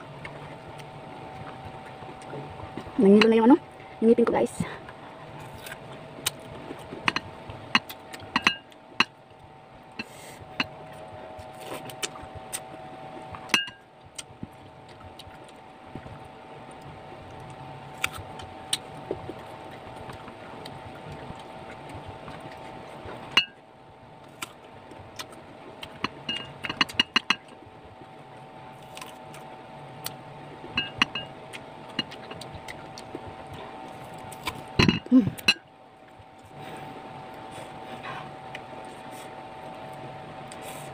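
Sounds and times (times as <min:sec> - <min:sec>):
steady hum: 0:00.0 - 0:40.9
clicks and clinks on ceramic bowl: 0:07.8 - 0:09.1, 0:13.6 - 0:13.8, 0:30.8 - 0:31.3.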